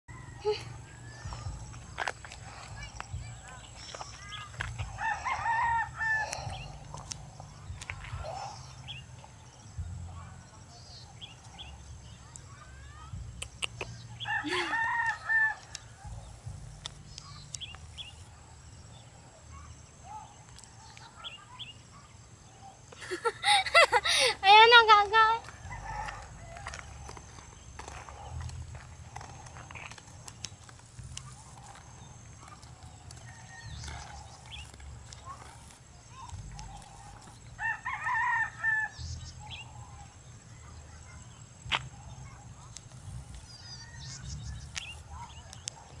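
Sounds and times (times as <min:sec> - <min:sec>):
steady low rumble: 0:00.3 - 0:20.0, 0:25.4 - 0:37.6
rooster crowing: 0:05.0 - 0:06.4, 0:25.7 - 0:26.8, 0:37.6 - 0:39.2.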